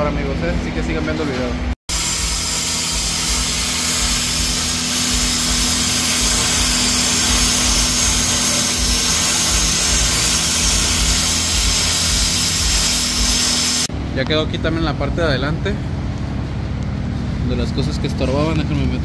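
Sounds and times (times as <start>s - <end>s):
cutting torch hissing: 1.9s - 13.9s.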